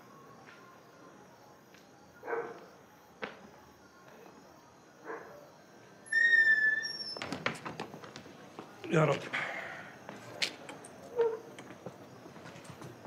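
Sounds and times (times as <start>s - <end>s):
dog barking: 2.2s - 2.6s, 5.0s - 5.4s.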